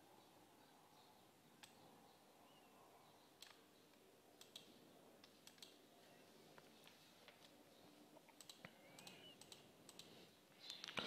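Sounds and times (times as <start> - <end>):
faint computer mouse clicks: 3.4 - 5.8, 8.3 - 11.0.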